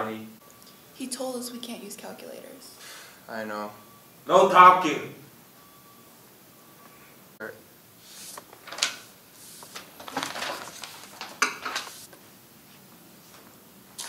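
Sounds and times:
paper rustling: 0:08.1 - 0:12.2.

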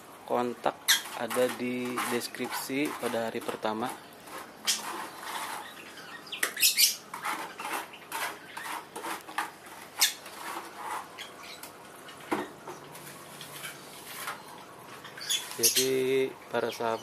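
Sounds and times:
trowel scraping wet cement: 0:01.0 - 0:06.1, 0:07.1 - 0:11.3, 0:13.0 - 0:14.5.

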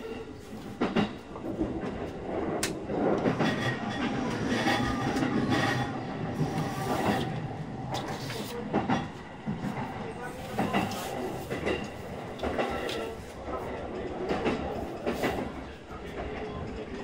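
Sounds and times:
train running rumble: 0:00.0 - 0:17.0.

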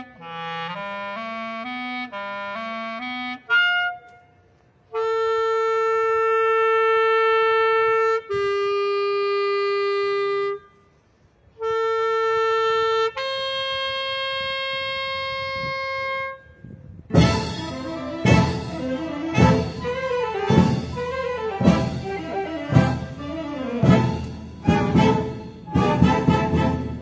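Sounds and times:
clarinet sustained notes: 0:11.5 - 0:27.0
full orchestra playing: 0:17.1 - 0:27.0.

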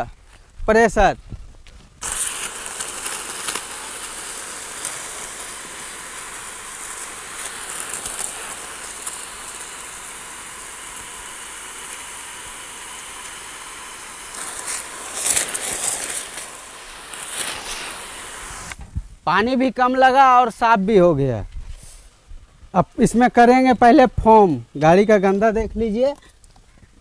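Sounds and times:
pressure washer jet hissing: 0:02.0 - 0:18.8.

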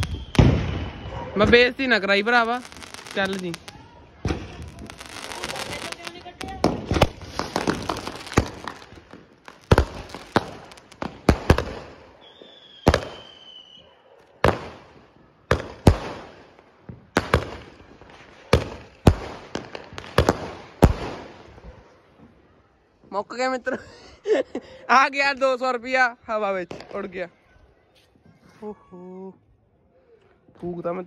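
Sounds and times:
falling whistle: 0:00.0 - 0:01.4, 0:12.2 - 0:14.0
fireworks bangs: 0:00.0 - 0:13.8, 0:14.4 - 0:22.3.

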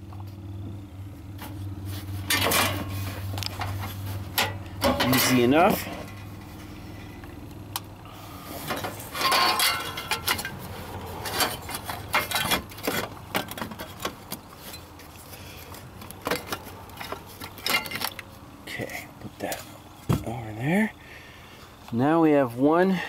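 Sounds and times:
light metallic clinks and scrapes: 0:08.5 - 0:19.8.

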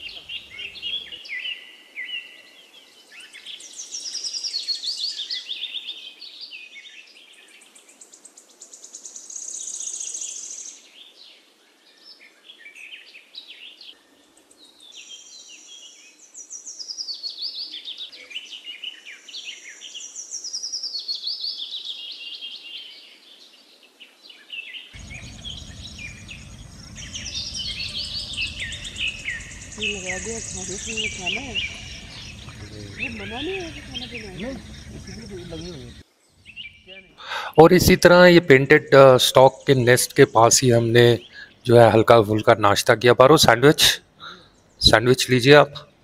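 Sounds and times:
songbirds trilling and chirping: 0:00.0 - 0:46.0
low rumbling noise: 0:25.0 - 0:36.9.

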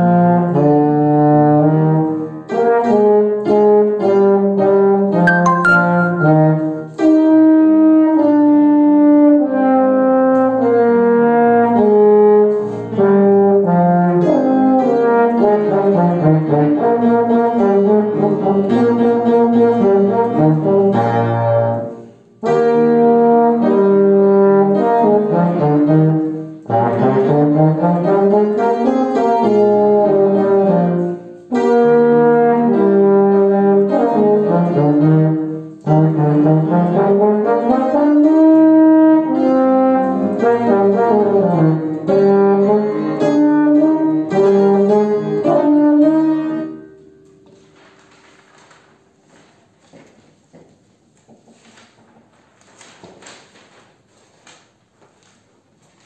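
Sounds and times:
piano accompaniment: 0:00.0 - 0:49.2
brass horn playing a melody: 0:02.6 - 0:07.2, 0:08.1 - 0:46.8.

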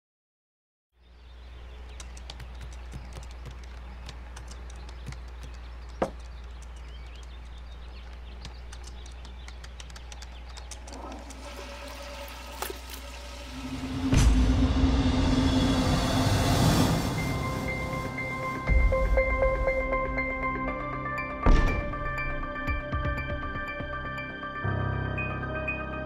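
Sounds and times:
small clicks: 0:01.9 - 0:11.4.

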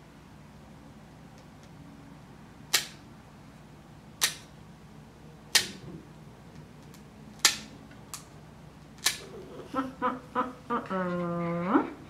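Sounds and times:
nail clippers snapping: 0:02.7 - 0:03.0, 0:04.2 - 0:04.5, 0:05.5 - 0:05.8, 0:06.9 - 0:08.3, 0:09.0 - 0:09.2.

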